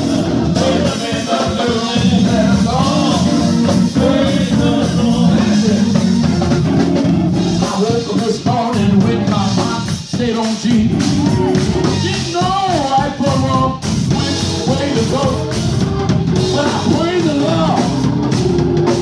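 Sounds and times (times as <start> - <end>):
drum kit beat: 0.0 - 19.0
electric organ chords: 0.0 - 19.0
person singing: 0.6 - 6.3, 7.6 - 15.8.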